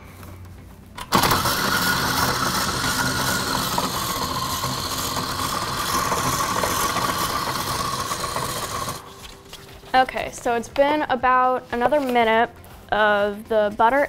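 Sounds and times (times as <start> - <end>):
stand mixer motor whine: 1.0 - 9.1
beater churning: 1.0 - 9.2.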